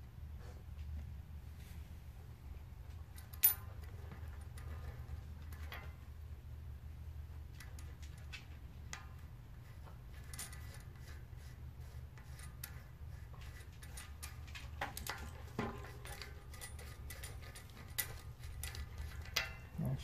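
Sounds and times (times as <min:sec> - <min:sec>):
low steady hum: 0:00.0 - 0:20.0
metal bicycle cogs clinking: 0:03.2 - 0:06.0, 0:12.2 - 0:20.0.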